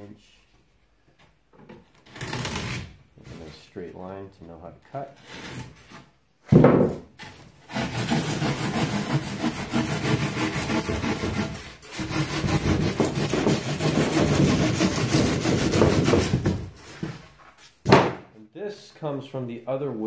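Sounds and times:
hand saw cutting foam board: 2.0 - 3.0, 7.6 - 17.1.

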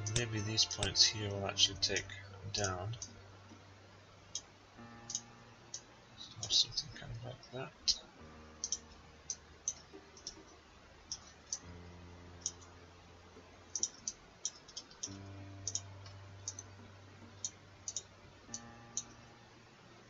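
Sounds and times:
faint low hum: 0.0 - 20.0
computer mouse clicking: 8.6 - 10.5, 11.1 - 11.7, 12.4 - 12.7, 13.7 - 16.7, 17.4 - 19.2.

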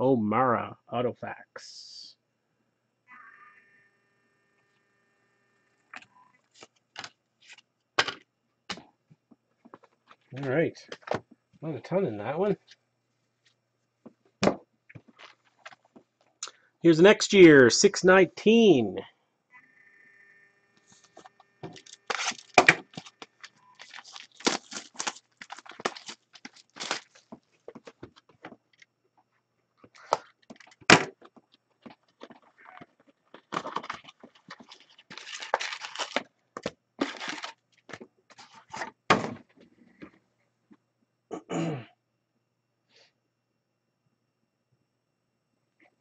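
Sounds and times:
cardboard being handled: 21.0 - 28.6, 31.9 - 39.4
cellophane crackling and tearing: 21.7 - 27.5, 33.4 - 36.3, 37.0 - 38.8.

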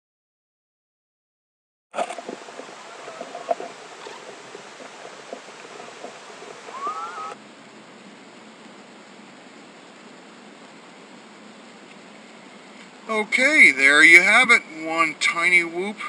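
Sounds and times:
steady hiss: 2.0 - 16.0
brief rising squeak: 6.7 - 7.4.

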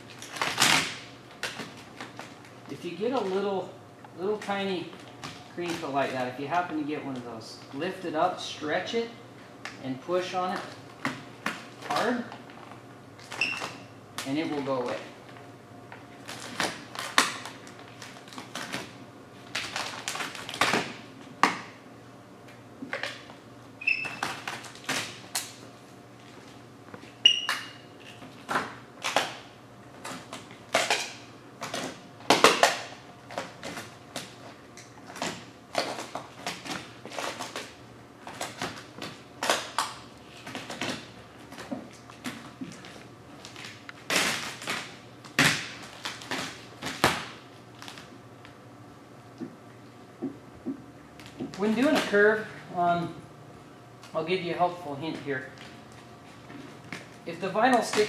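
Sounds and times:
vinyl film crinkling: 0.0 - 7.9, 9.6 - 21.4, 24.1 - 27.2, 28.0 - 48.6, 54.0 - 58.0
short squeaks: 23.8 - 24.4, 27.2 - 27.9.

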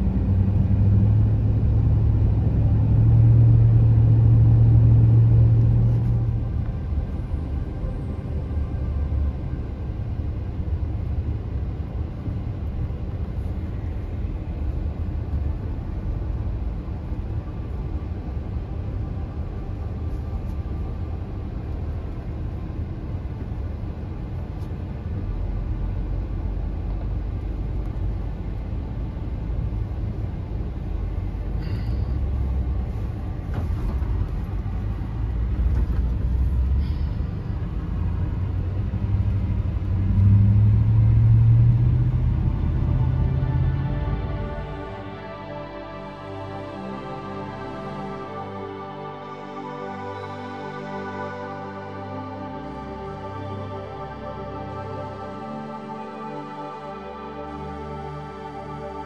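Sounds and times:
car cabin road rumble: 0.0 - 45.2.

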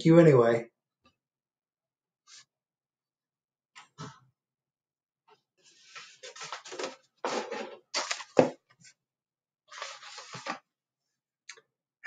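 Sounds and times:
paper pages rustling: 5.6 - 8.9, 9.7 - 10.7.

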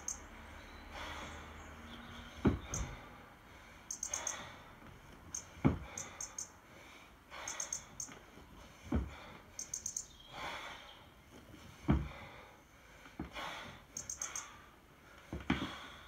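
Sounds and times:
forceful breaths: 0.0 - 16.0.

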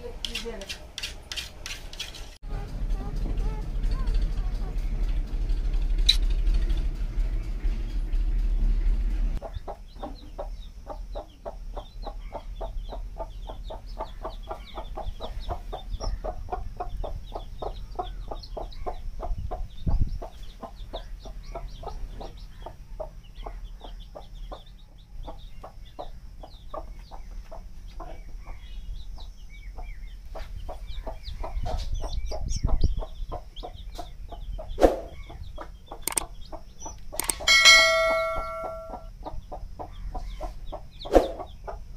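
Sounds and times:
low rumble: 2.4 - 9.7
chicks peeping: 9.4 - 41.9
hen clucking: 9.4 - 41.9.

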